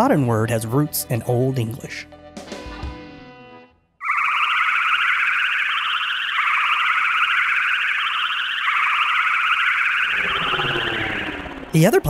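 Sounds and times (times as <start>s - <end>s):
high electronic warble: 4.0s - 12.0s.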